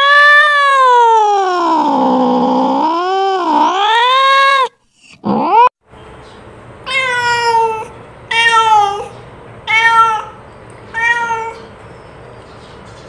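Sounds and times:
cat meowing: 0.0s - 4.7s, 6.9s - 11.7s.

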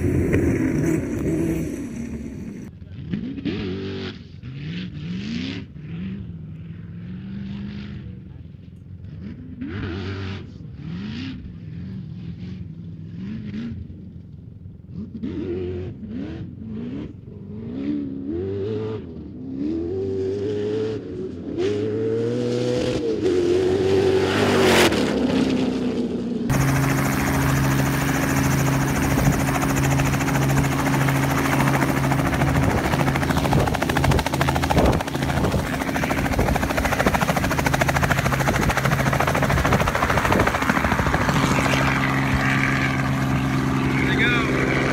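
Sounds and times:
rushing wind from rotor wash: 0.0s - 2.7s, 26.5s - 44.9s
helicopter drone: 0.0s - 2.9s, 21.8s - 44.9s
sand car engine revving: 0.0s - 8.2s, 14.9s - 44.9s.

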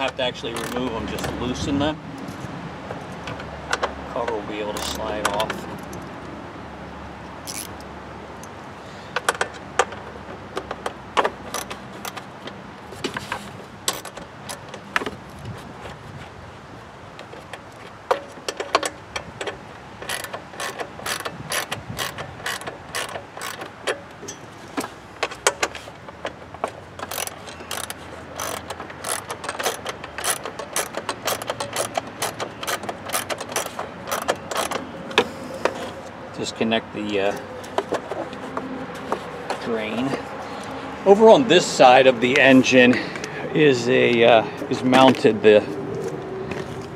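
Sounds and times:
ratchet wrench clicking: 0.0s - 0.9s, 4.7s - 6.1s, 7.4s - 8.5s, 18.6s - 24.4s, 27.0s - 34.8s.

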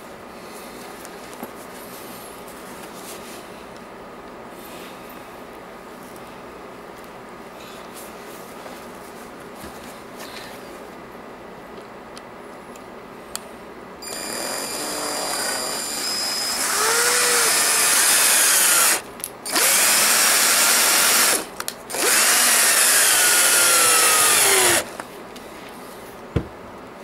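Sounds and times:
power drill motor whirring: 14.0s - 24.9s.

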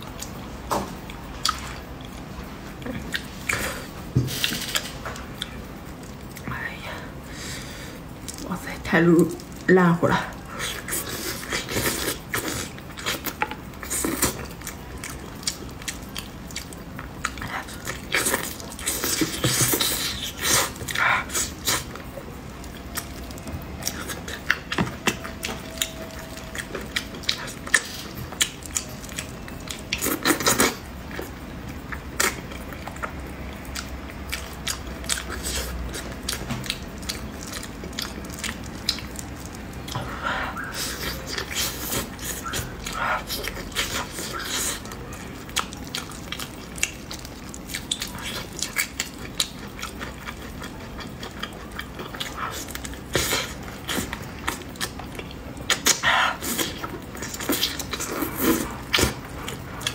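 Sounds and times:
chewing and gnawing mouth sounds: 0.0s - 6.8s, 7.4s - 59.9s
wet mouth clicks: 55.6s - 59.9s.

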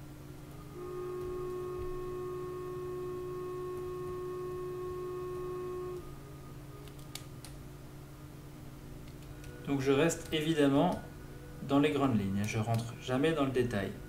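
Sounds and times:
steady tone: 0.0s - 6.8s.

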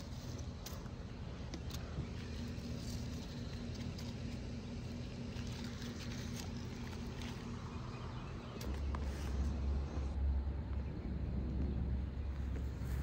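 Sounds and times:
leaves rustling: 0.0s - 10.2s
low outdoor hum: 0.0s - 13.0s.

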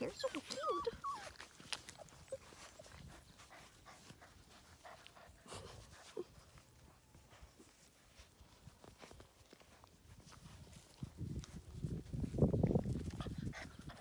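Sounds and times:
puppies whimpering: 0.0s - 4.2s
puppies pawing and scuffling: 0.0s - 14.0s.

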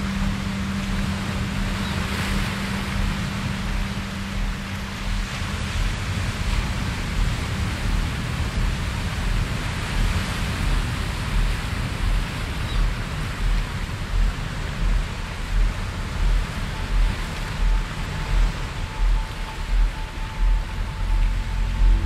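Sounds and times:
soft low pulses: 0.0s - 22.0s
steady rushing noise: 0.0s - 22.0s.

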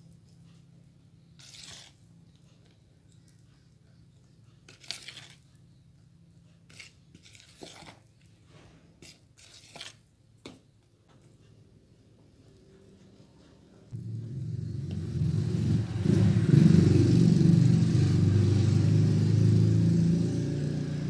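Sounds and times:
spatula scraping batter in bowl: 1.2s - 5.8s, 6.4s - 10.6s.

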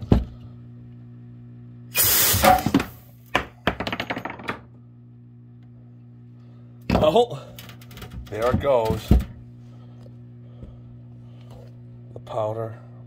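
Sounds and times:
loud hiss of gas: 1.9s - 2.7s.

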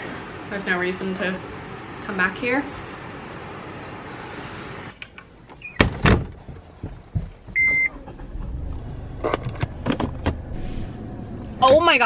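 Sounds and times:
short electronic beep: 3.8s - 4.4s
loud thumps: 5.8s - 10.5s
car running hum: 5.9s - 12.0s.

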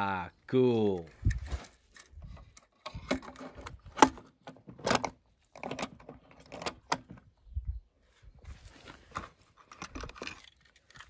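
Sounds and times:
toy cars clattering: 9.5s - 11.0s.

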